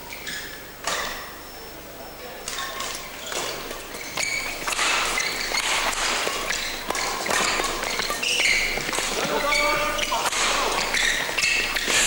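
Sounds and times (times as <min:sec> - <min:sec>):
hum of crowded hall: 0:00.0 - 0:12.0
shoes squeaking on court: 0:00.1 - 0:01.4, 0:02.4 - 0:12.0
rackets striking shuttlecock: 0:02.4 - 0:12.0.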